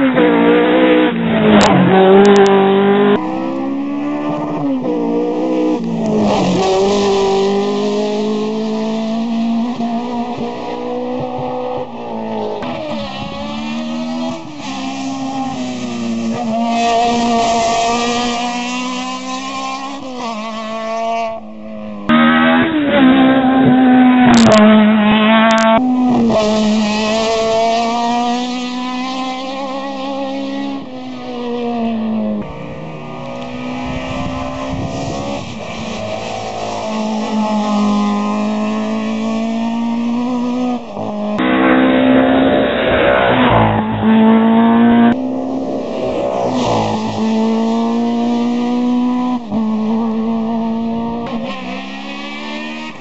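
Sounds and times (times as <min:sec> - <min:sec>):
rally car engines revving hard: 0:00.0 - 0:53.0.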